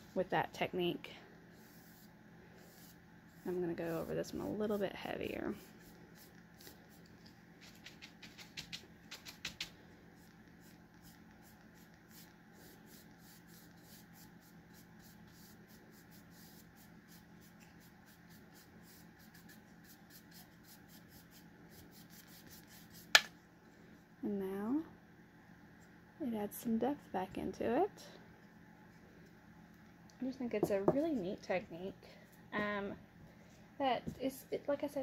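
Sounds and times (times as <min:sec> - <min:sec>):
brush scratching on wood: 0:01.6 - 0:09.6.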